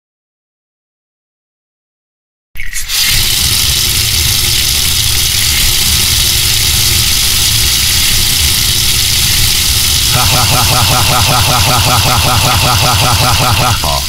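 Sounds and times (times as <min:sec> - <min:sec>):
tap water gushing into sink: 0:02.8 - 0:14.0.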